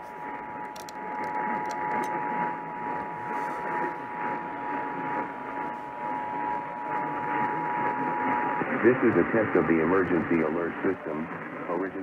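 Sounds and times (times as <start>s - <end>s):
radio static: 6.2s - 12.0s.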